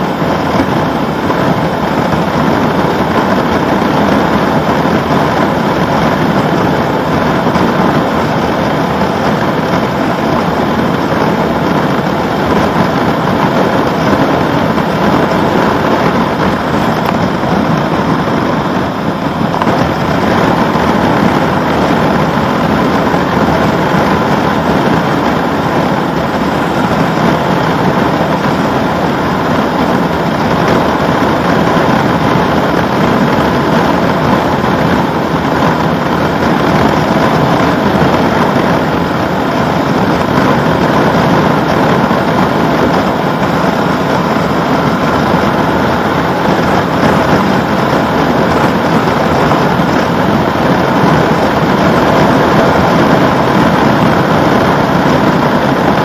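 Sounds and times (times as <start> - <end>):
motorcycle engine cruising: 0.0 - 56.0
wind and road noise: 0.0 - 56.0.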